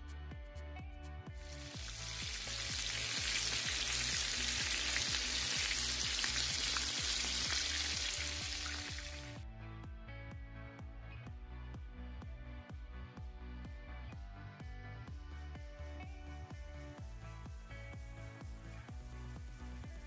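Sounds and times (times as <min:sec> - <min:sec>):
fish sizzling in hot oil: 0:01.4 - 0:09.4.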